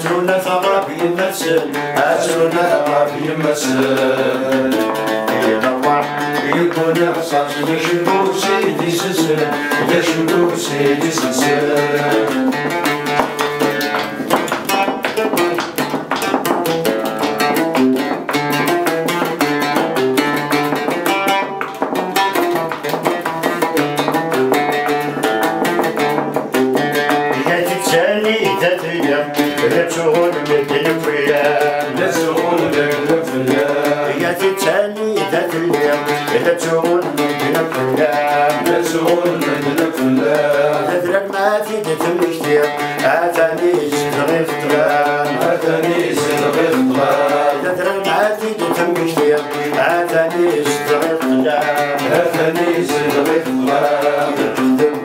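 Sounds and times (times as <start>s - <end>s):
man singing: 0.0s - 13.9s, 26.8s - 55.0s
plucked mandole notes: 0.0s - 55.0s.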